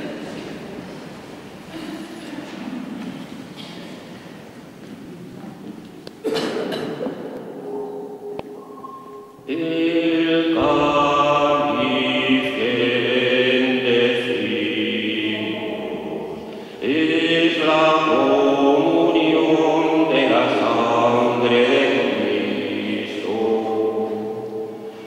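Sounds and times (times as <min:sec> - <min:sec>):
voices singing a chant: 0:07.6 - 0:25.0.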